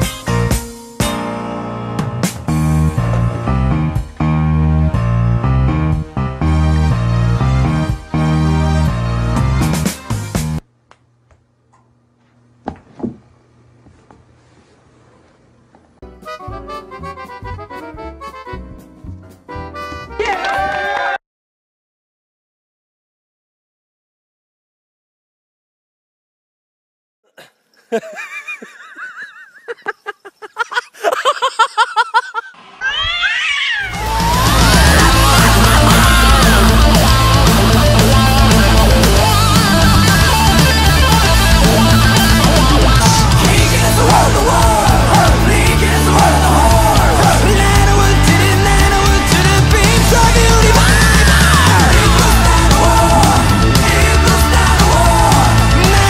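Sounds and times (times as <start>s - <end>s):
background music with bass line: 0.0s - 10.6s, 16.0s - 20.2s, 34.0s - 56.0s
cat yowling: 32.8s - 36.6s.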